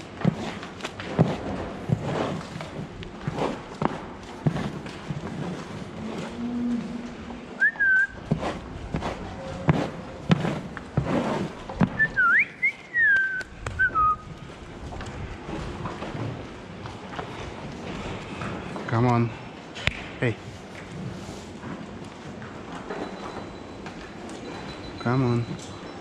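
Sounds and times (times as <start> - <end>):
cow hooves clattering on concrete: 0.0 - 26.0
person whistling: 7.6 - 8.2, 12.0 - 14.2.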